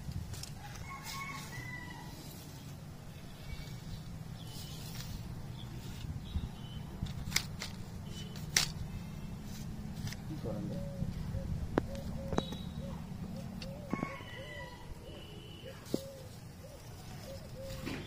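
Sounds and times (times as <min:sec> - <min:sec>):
fishing rod sections clicking: 0:07.0 - 0:08.8
faint bird calls: 0:10.3 - 0:18.0.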